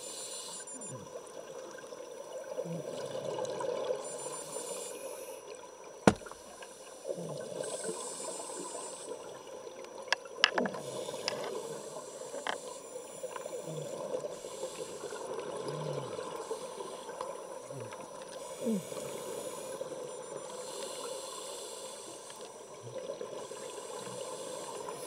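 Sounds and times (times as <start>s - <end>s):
regulator hiss on inhalation: 0.0s - 1.0s, 4.1s - 5.4s, 7.6s - 9.2s, 10.7s - 15.3s, 18.4s - 22.7s, 23.4s - 25.0s.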